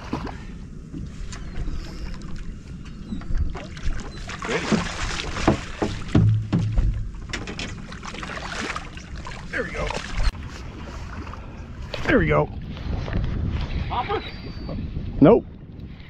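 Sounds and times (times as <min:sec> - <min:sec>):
water splashing against boat hull: 0:03.2 - 0:12.1
sharp knocks: 0:04.8 - 0:07.8.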